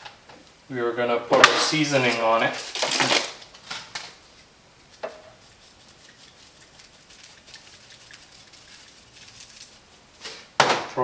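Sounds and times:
seasoning sprinkling patter: 0:01.8 - 0:10.5
seasoning shaker clicks: 0:04.9 - 0:09.9.

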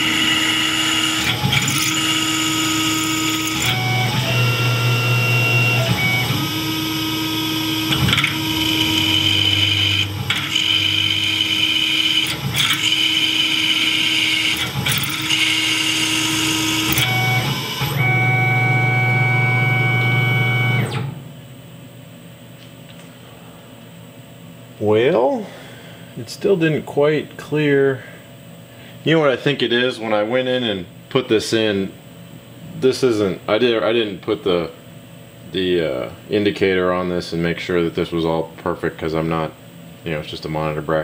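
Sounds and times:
milling machine whine: 0:00.0 - 0:21.3.

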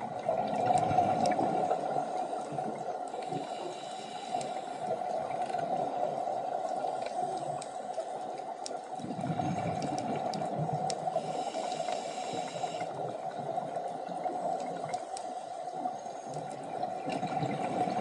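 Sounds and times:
gurgling rush of bubbles: 0:00.0 - 0:02.8, 0:09.0 - 0:10.9, 0:16.7 - 0:18.0
underwater hiss: 0:00.4 - 0:05.2, 0:10.9 - 0:13.1.

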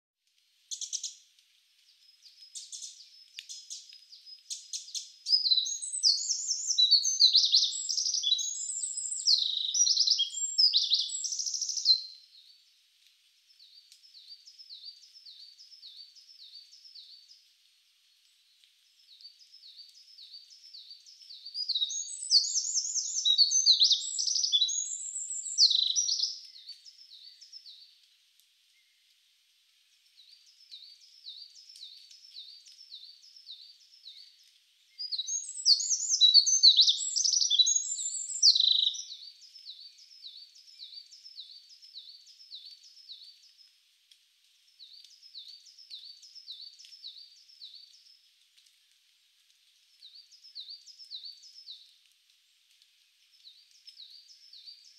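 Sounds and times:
short repeated bird chirps: 0:00.7 - 0:01.2, 0:01.9 - 0:12.6, 0:19.0 - 0:27.9, 0:30.2 - 0:43.7
songbirds warbling: 0:01.9 - 0:12.7, 0:18.9 - 0:28.0, 0:30.0 - 0:43.7.

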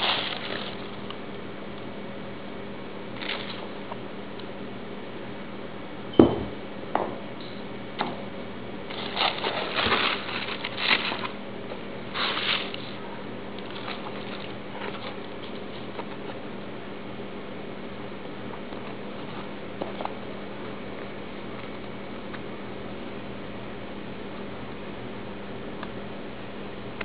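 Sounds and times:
tissue paper rustling in a box: 0:00.0 - 0:01.0, 0:08.9 - 0:11.4, 0:12.1 - 0:13.0, 0:13.6 - 0:15.9
faint steady hum: 0:00.0 - 0:27.0
thump: 0:06.2 - 0:07.2.

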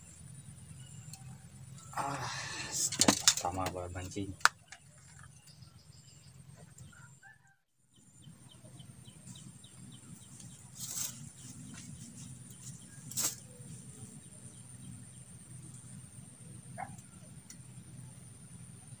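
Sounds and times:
steady low hum: 0:00.0 - 0:07.2, 0:07.9 - 0:19.0
bird chirping: 0:03.4 - 0:19.0.

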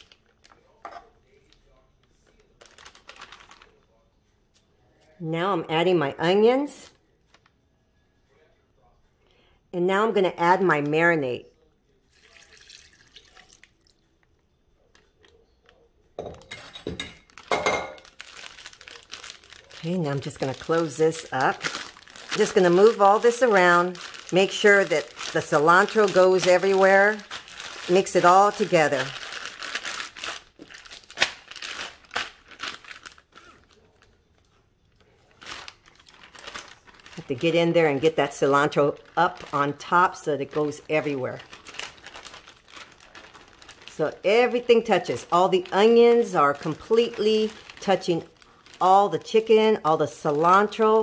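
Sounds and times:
plastic bag crinkling: 0:00.0 - 0:04.0, 0:17.2 - 0:51.0
marinade pouring into bag: 0:12.1 - 0:13.9, 0:17.4 - 0:34.0, 0:38.1 - 0:49.4.

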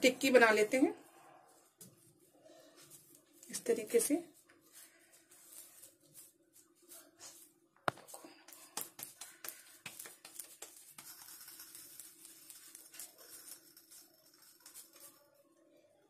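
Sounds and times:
hands patting soft mixture: 0:04.4 - 0:13.2.

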